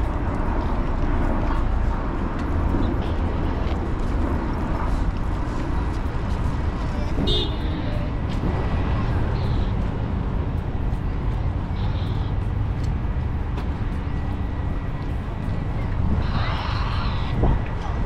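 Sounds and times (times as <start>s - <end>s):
traffic rumble: 0.0s - 18.0s
people's voices: 5.6s - 18.0s.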